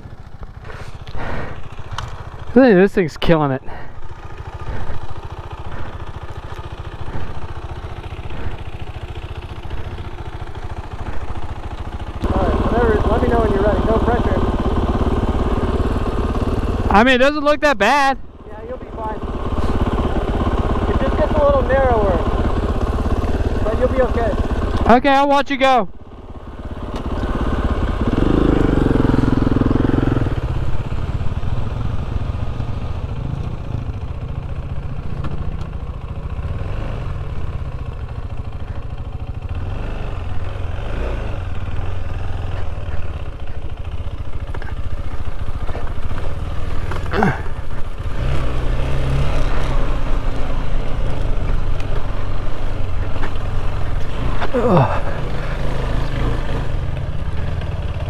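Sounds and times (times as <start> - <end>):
motorcycle engine at low revs: 0.0 - 58.0.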